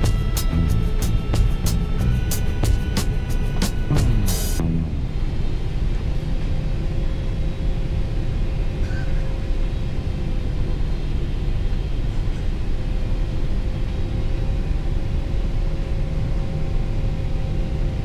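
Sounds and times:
airflow noise: 0:00.0 - 0:08.3
airliner engine noise: 0:00.0 - 0:18.0
faint steady hum: 0:00.0 - 0:18.0.

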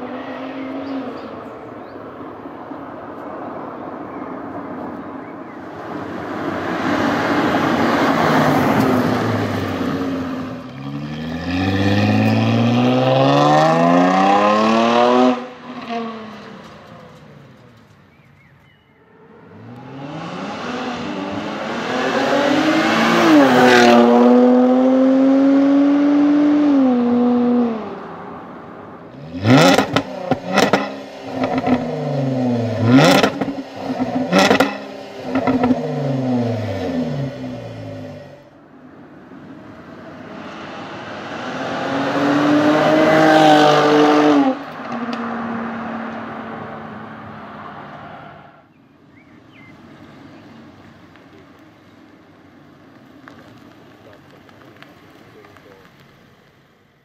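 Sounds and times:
car engine accelerating hard: 0:05.8 - 0:17.2, 0:19.5 - 0:38.5, 0:40.2 - 0:48.4.

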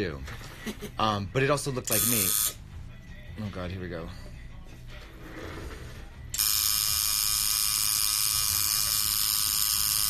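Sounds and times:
tattoo machine buzzing: 0:01.9 - 0:02.6, 0:06.3 - 0:10.0.

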